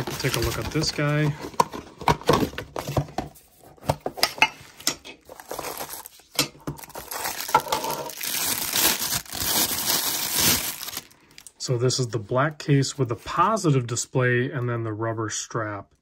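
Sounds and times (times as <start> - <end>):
plastic bag crinkling: 0.0 - 1.4, 5.2 - 11.5.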